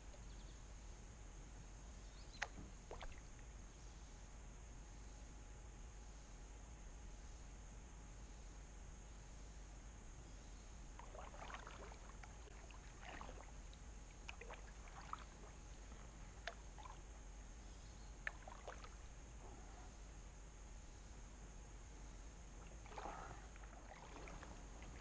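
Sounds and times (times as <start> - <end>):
paddle splashes and drips: 2.4 - 3.4, 11.0 - 17.2, 18.2 - 19.1, 22.6 - 25.0.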